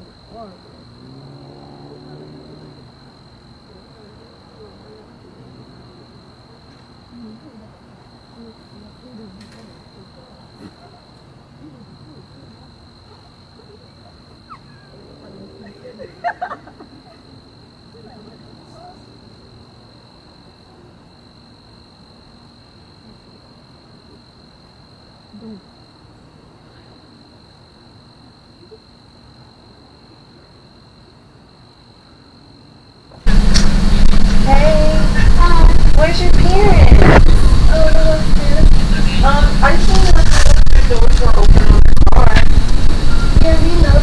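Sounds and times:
night insects chirring: 0.0 - 44.0
low rumble: 33.3 - 44.0.

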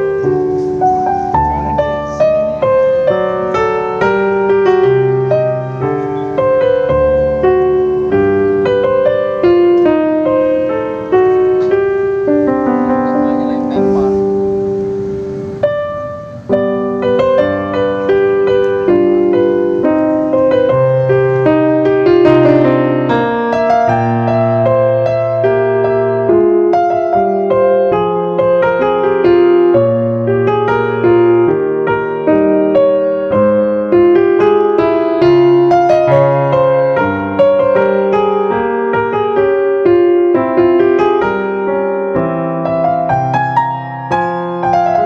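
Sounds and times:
piano music: 0.0 - 45.0.

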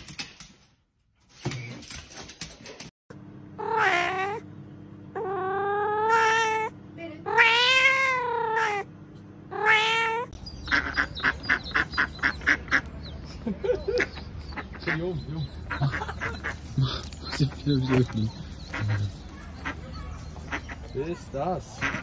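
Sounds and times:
cat yowling: 3.6 - 4.4, 5.2 - 8.9, 9.5 - 10.3
duck quacking rapidly: 10.7 - 12.9, 17.4 - 19.9, 20.5 - 21.0, 21.7 - 22.0.

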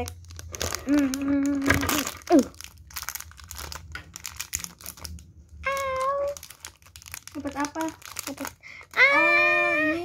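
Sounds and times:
foil packet crinkling open: 0.0 - 9.4.

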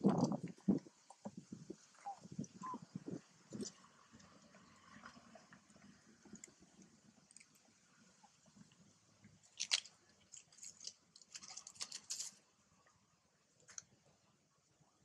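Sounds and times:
faint crackling and rustling: 0.0 - 14.3.

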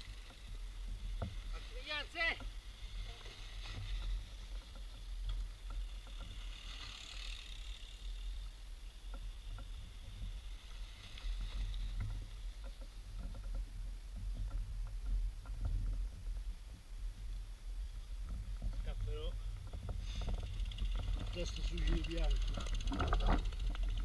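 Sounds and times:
bike clicks and rattles: 0.0 - 1.7, 2.4 - 17.4, 18.1 - 24.0
wind rumble on microphone: 8.2 - 24.0.

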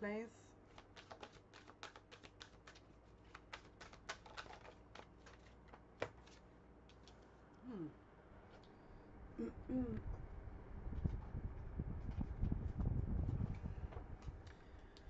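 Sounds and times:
cards being shuffled: 0.7 - 7.3.

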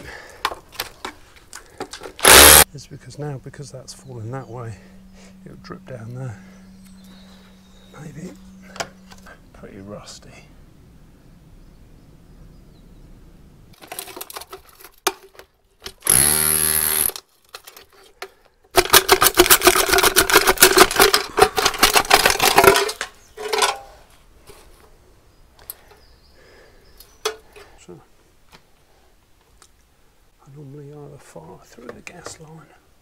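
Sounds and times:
power tool burst: 2.2 - 2.6, 16.0 - 17.2
metal pipe rattling and scraping: 18.8 - 24.0.

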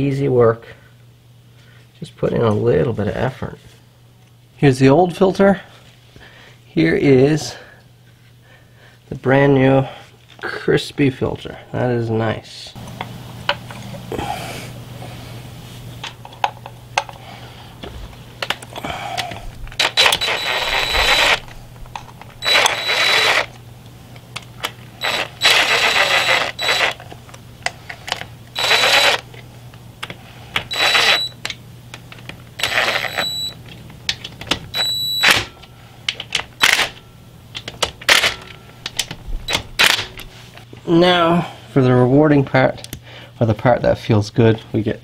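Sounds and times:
impact driver whining: 18.8 - 23.6, 24.6 - 27.0, 28.5 - 29.3, 30.6 - 31.4, 32.5 - 33.6, 34.7 - 35.5.

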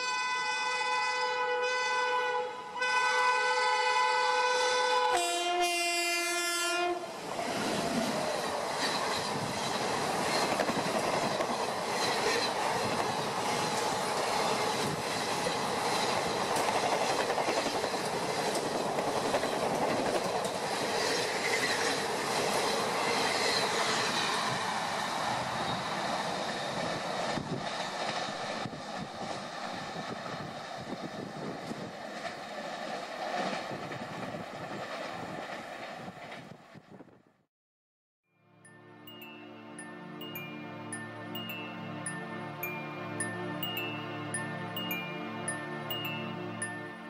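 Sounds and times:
locomotive horn: 0.0 - 7.2.

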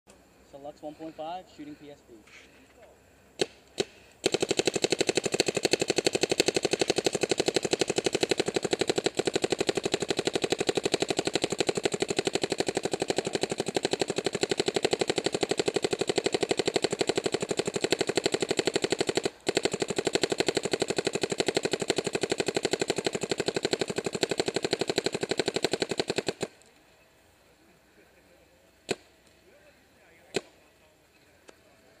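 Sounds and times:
paintball marker rapid firing: 3.4 - 26.7, 28.8 - 29.1, 30.2 - 30.6
paintball marker single shots: 3.4 - 26.7, 28.8 - 29.4, 30.2 - 30.6.

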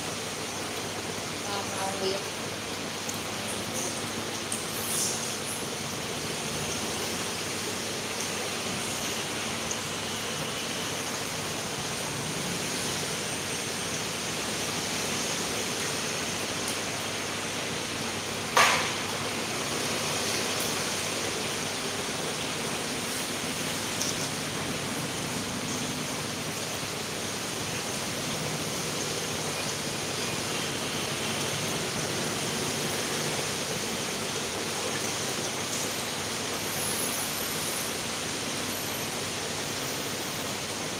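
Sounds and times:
sharp knock: 18.6 - 19.0.

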